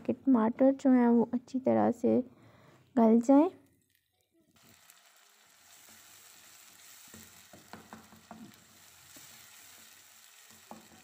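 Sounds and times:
onions frying in oil sizzle: 0:03.9 - 0:11.0
spatula stirring and knocking pot: 0:07.0 - 0:11.0.

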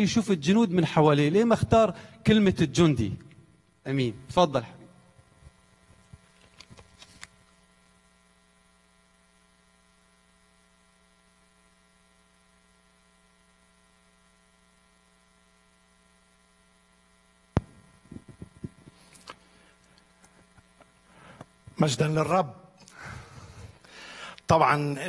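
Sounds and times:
faint electrical hum: 0:00.0 - 0:25.0
microphone thump: 0:17.6 - 0:19.0
microphone handling noise: 0:17.6 - 0:19.4.

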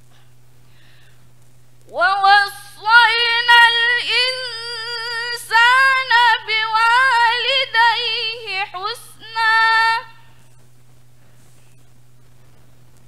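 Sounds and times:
woman chanting melodically: 0:01.9 - 0:10.3.

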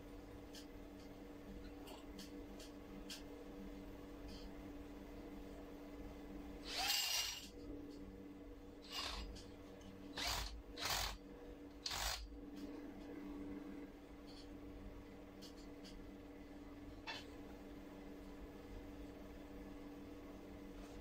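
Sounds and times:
cordless drill whining: 0:06.7 - 0:07.5, 0:08.9 - 0:09.3, 0:10.2 - 0:11.2, 0:11.8 - 0:12.2.

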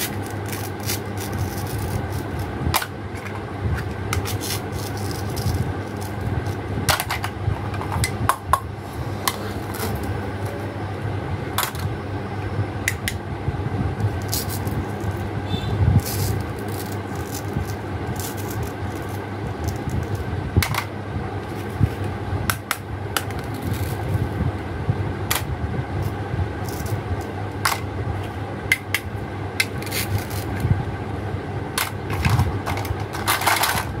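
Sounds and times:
plastic toy pieces clattering: 0:00.0 - 0:08.1, 0:14.2 - 0:15.3, 0:16.0 - 0:20.9, 0:23.2 - 0:24.1, 0:26.6 - 0:27.0, 0:29.6 - 0:30.6, 0:31.8 - 0:34.0
steady low hum: 0:00.0 - 0:34.0.

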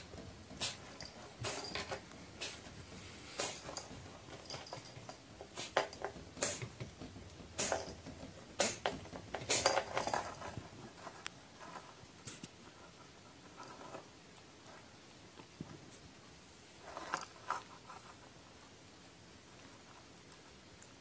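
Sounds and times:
collar bell clinking: 0:03.6 - 0:05.2.

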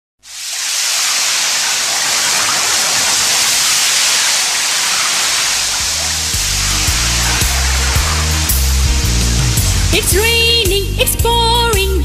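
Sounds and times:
pouring rain: 0:00.2 - 0:10.6
low bass music with beat: 0:06.3 - 0:12.0.

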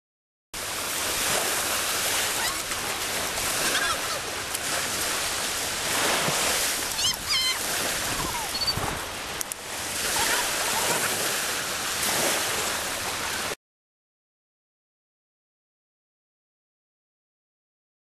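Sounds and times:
waves breaking on beach: 0:00.6 - 0:13.6
faint high-pitched calls: 0:06.9 - 0:08.8.

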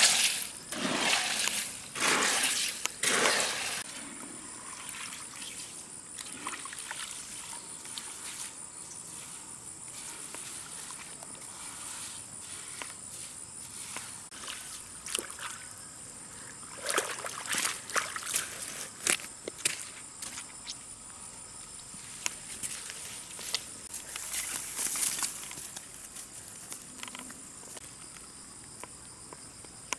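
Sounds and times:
water sloshing and splashing: 0:00.0 - 0:04.0, 0:04.6 - 0:08.5, 0:13.7 - 0:15.7, 0:16.6 - 0:19.2.

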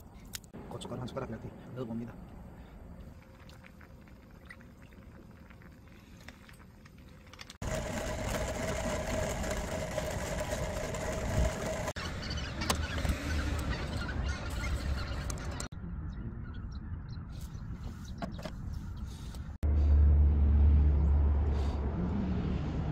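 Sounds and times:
coffee grinder grinding beans: 0:07.4 - 0:12.0.

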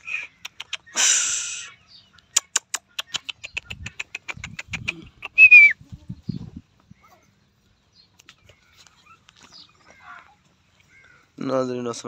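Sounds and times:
bird sharp chips: 0:00.0 - 0:05.7.

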